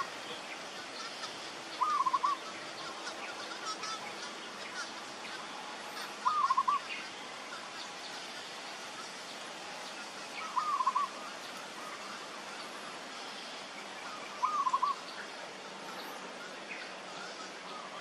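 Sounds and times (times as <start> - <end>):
bird quavering call: 0.0 - 9.1, 10.0 - 15.2
background hiss: 0.0 - 18.0.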